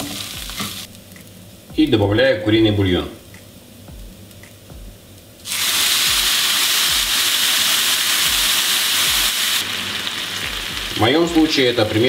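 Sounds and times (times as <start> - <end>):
broth sizzling in hot pan: 0.0 - 1.0, 5.4 - 12.0.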